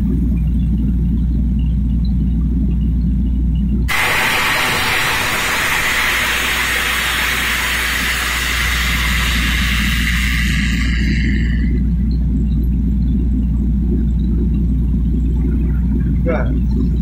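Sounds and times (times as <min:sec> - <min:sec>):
engine rumbling low: 0:00.0 - 0:17.0
compressed air rushing: 0:03.9 - 0:11.9.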